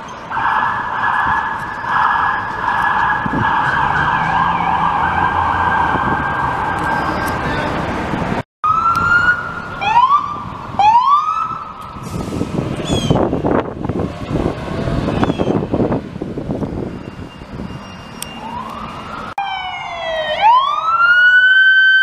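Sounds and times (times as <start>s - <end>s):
rising siren whoops: 0.3s - 7.5s, 8.6s - 12.0s, 17.7s - 22.0s
cycling electronic police siren: 0.3s - 7.7s, 8.6s - 12.0s, 16.7s - 22.0s.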